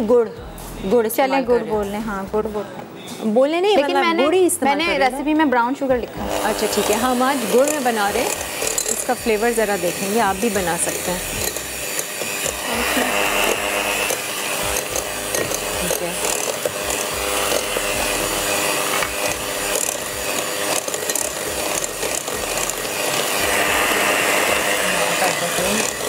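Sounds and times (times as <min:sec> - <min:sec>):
beaters churning and scraping: 0:05.9 - 0:26.0
electric mixer motor hum: 0:06.0 - 0:26.0.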